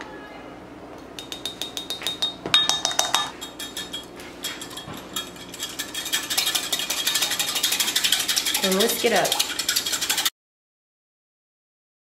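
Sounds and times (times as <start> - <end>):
whisk clinking against glass cup: 1.2 - 10.3.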